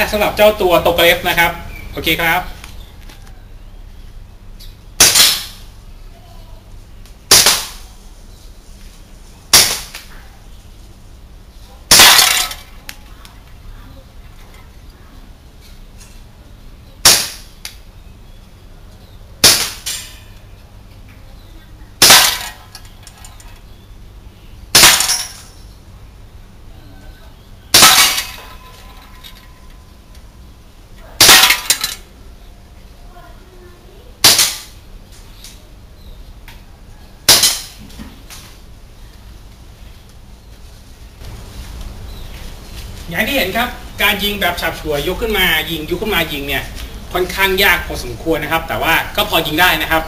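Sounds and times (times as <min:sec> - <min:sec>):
airsoft pistol shots: 0:05.0 - 0:05.6, 0:07.3 - 0:07.8, 0:17.0 - 0:17.5, 0:19.4 - 0:19.9
bb rattling a can target: 0:22.0 - 0:22.9.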